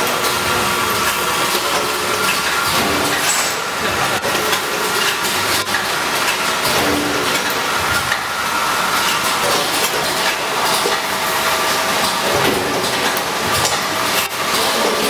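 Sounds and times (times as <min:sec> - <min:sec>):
packaging machine clattering: 0:00.0 - 0:15.0.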